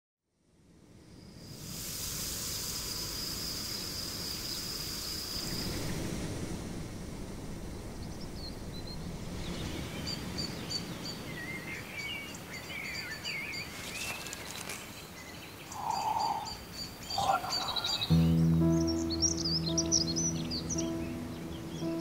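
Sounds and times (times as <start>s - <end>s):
songbirds singing: 8.0s - 22.0s
lower-pitched bird calls: 15.5s - 22.0s
low steady rush: 17.1s - 22.0s.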